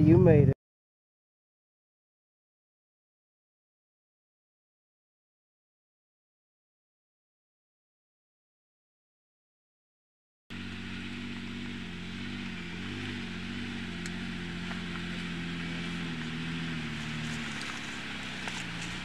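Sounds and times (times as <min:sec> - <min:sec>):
engine running: 0:10.5 - 0:19.0.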